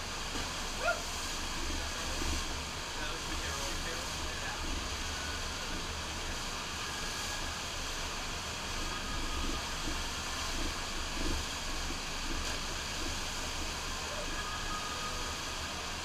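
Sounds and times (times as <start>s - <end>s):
rushing water of wave machine: 0.0s - 16.0s.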